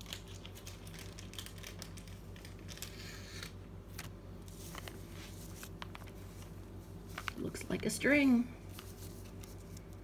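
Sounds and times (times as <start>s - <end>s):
small clicks and crackles: 0.0s - 4.1s
steady low hum: 0.0s - 10.0s.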